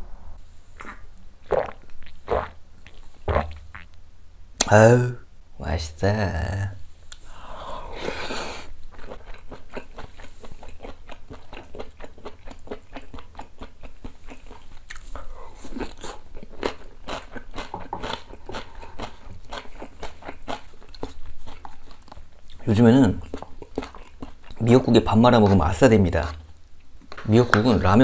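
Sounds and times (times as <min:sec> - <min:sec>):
person chewing food: 0:07.1 - 0:22.6, 0:23.2 - 0:24.6.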